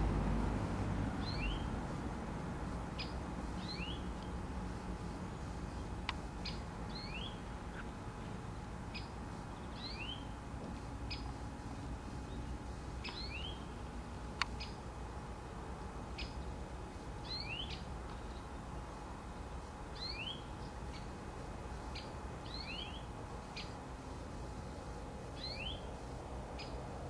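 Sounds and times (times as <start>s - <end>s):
steady background hiss: 0.0s - 27.0s
small bird chirping: 1.2s - 1.8s, 2.9s - 8.0s, 8.9s - 10.4s, 11.0s - 11.5s, 12.1s - 13.8s, 14.4s - 14.9s, 16.1s - 16.6s, 17.2s - 23.8s, 24.6s - 26.8s.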